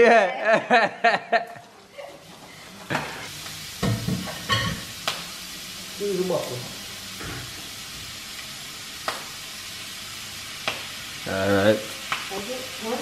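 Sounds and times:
shrimp and vegetables sizzling: 0.0s - 13.0s.

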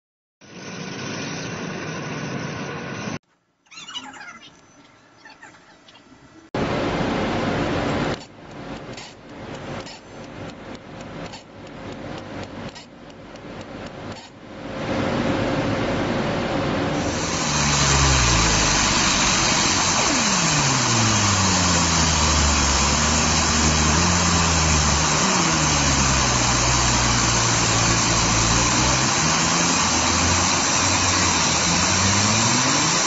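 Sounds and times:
steady hiss: 17.0s - 33.0s.

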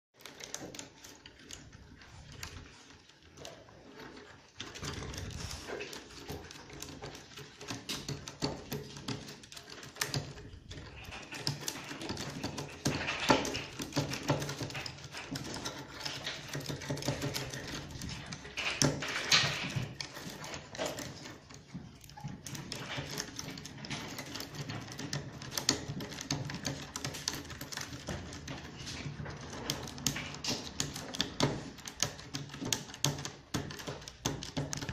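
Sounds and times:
wooden abacus beads clicking: 0.2s - 34.9s.

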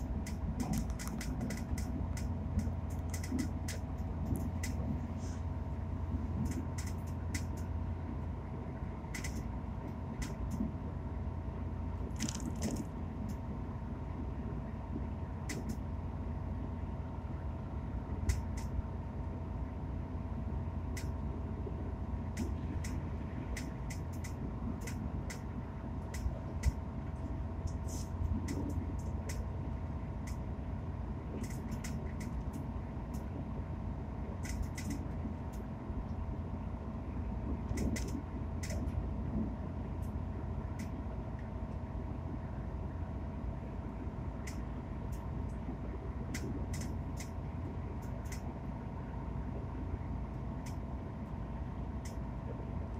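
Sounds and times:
train cabin rumble: 0.0s - 52.9s
sharp clicking rattles: 0.2s - 4.8s, 12.1s - 13.4s.

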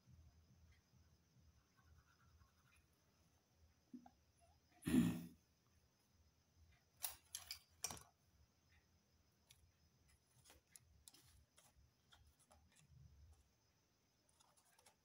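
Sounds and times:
paper and pencil clicks: 7.0s - 8.2s, 9.4s - 13.5s, 14.2s - 15.0s.

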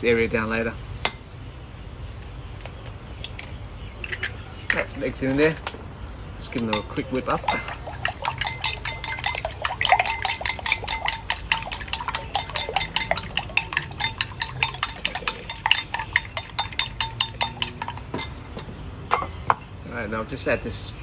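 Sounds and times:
chopsticks whisking in a bowl: 6.5s - 18.4s.

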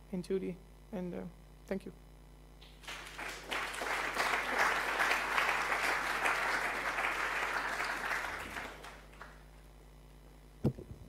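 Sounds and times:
audience applauding: 2.6s - 9.5s.

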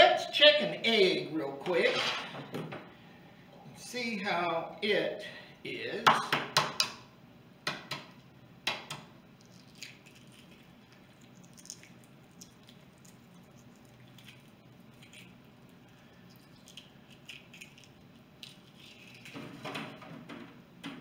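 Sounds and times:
eggshell crackling while peeled: 9.3s - 19.6s.

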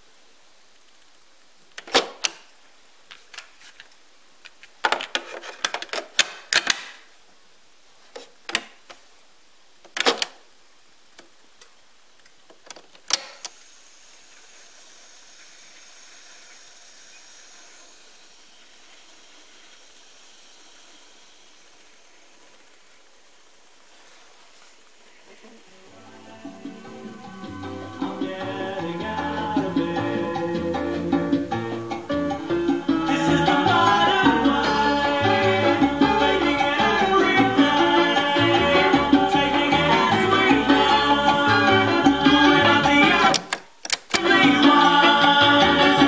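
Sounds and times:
tape transport whir and hiss: 0.0s - 46.0s
cassette door and tape clicks: 1.8s - 2.5s, 4.8s - 7.0s, 9.9s - 10.4s, 12.6s - 13.6s, 43.2s - 44.3s.

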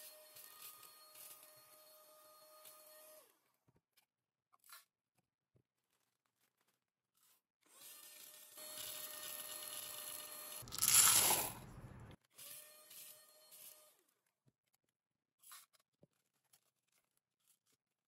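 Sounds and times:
plastic beads rattling into vacuum: 9.2s - 12.1s.

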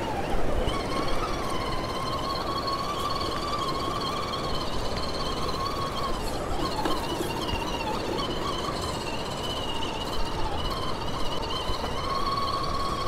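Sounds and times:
electric motor whining: 0.0s - 13.0s.

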